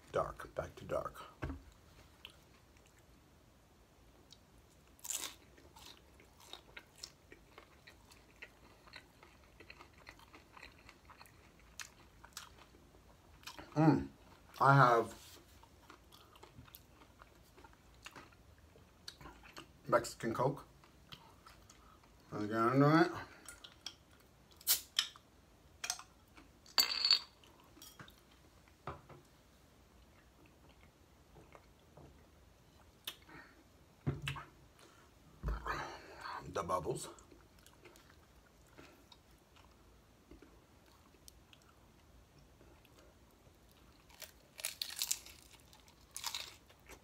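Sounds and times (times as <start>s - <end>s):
crunchy chewing: 5.0s - 12.8s, 43.7s - 47.0s
glass bottle clinking: 26.8s - 27.3s.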